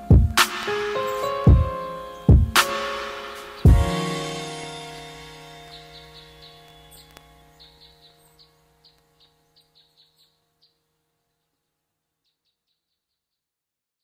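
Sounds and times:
held music chords: 0.0 - 9.7
high bird chirps: 0.7 - 10.7.

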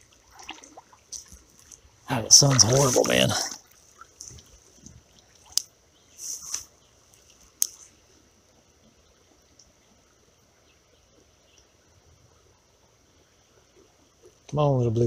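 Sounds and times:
faint high hiss: 0.0 - 15.0
short scraping rustle: 2.4 - 4.6, 6.1 - 7.9.

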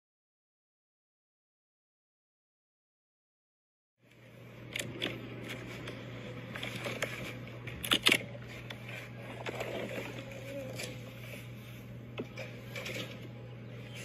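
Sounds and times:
steady low hum: 4.0 - 14.0.

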